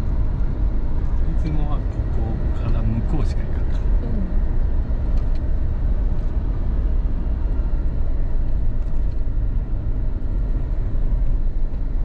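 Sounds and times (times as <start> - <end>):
road rumble inside moving car: 0.0 - 12.0.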